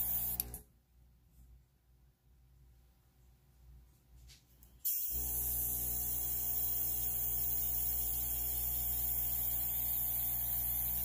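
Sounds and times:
airbrush air hissing: 4.8 - 11.0
compressor humming: 4.9 - 11.0.

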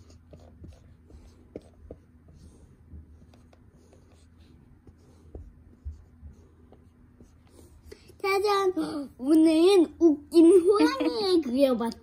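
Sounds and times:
marker scratching on whiteboard: 0.0 - 8.1.

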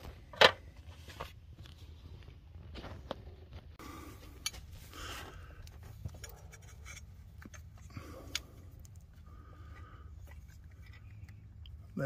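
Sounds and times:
plastic parts clicking and scraping: 5.6 - 11.9.

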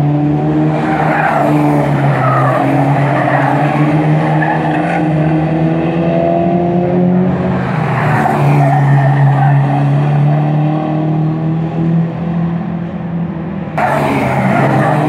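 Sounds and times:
race car engines: 0.0 - 15.0
tyre and road noise: 0.0 - 15.0
loud rush of noise: 12.9 - 15.0.

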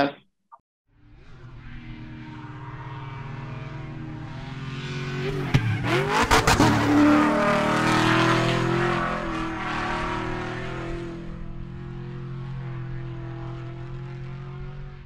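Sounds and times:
race car engine drone: 0.9 - 15.0
race car passing with cracks: 4.3 - 11.4.

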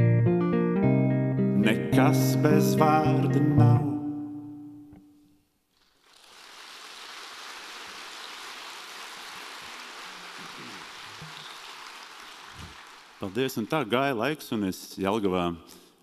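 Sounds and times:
audience applauding: 5.8 - 14.0.

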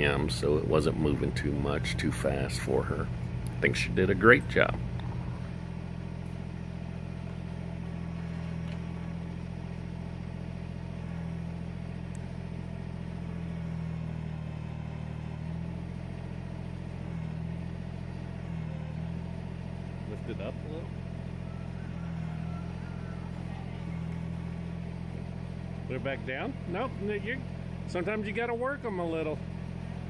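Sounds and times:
tractor diesel engine running: 0.0 - 30.0.

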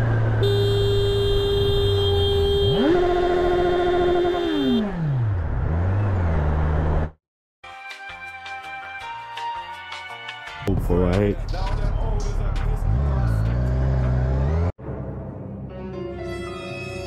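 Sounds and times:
motorcycle engine revving: 0.0 - 7.2, 12.6 - 14.7
background music: 7.6 - 17.0.

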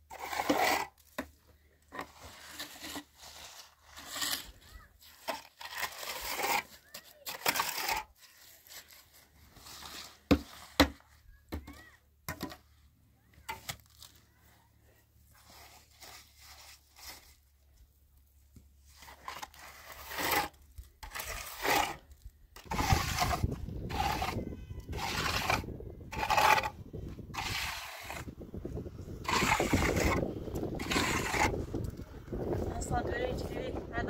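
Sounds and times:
trowel scraping mortar: 0.0 - 11.7, 15.3 - 17.4, 18.8 - 32.0.

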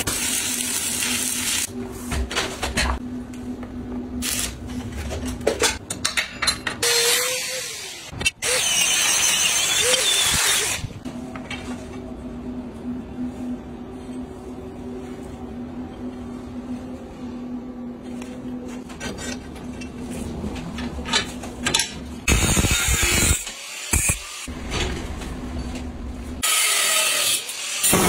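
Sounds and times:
low hum: 10.8 - 22.3.

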